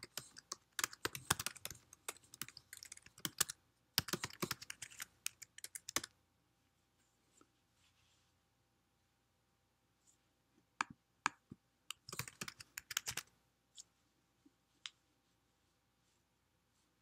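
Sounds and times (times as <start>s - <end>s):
typing on computer keyboard: 0.0s - 6.1s, 11.9s - 13.3s.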